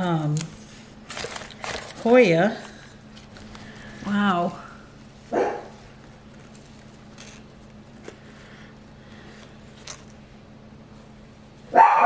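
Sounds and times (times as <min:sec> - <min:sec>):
low steady hum: 0:00.0 - 0:12.0
paper rustling and crinkling: 0:00.2 - 0:04.6, 0:05.8 - 0:08.5.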